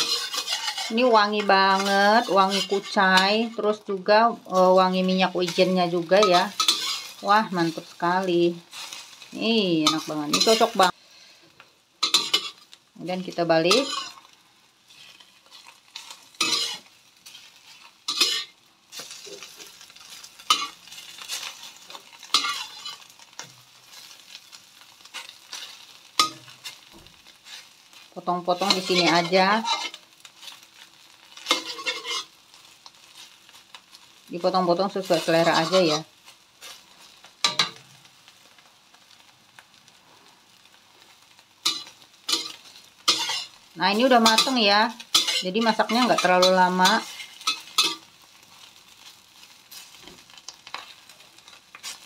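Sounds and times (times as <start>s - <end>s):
metal spatula scraping wok: 0.0s - 11.0s, 12.0s - 33.7s, 34.5s - 37.8s, 41.0s - 52.0s
egg sizzling in oil: 0.0s - 52.0s.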